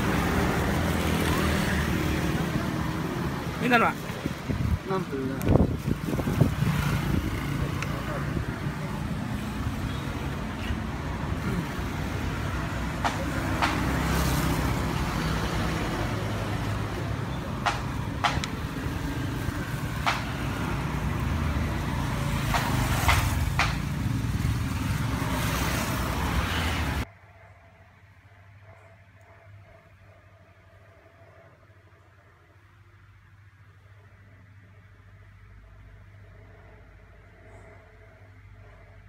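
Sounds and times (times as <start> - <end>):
street traffic rumble: 0.0 - 39.0.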